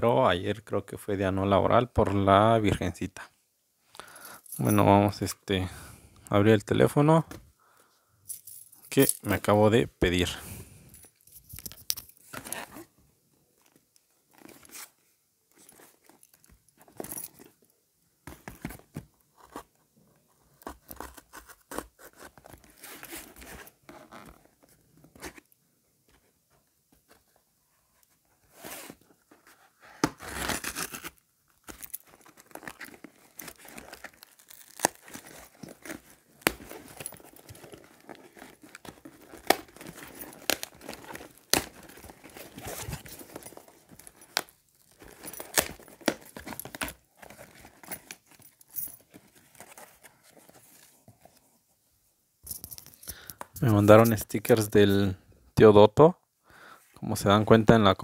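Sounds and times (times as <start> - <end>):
cardboard tearing: 30.0 - 31.2, 32.1 - 48.3.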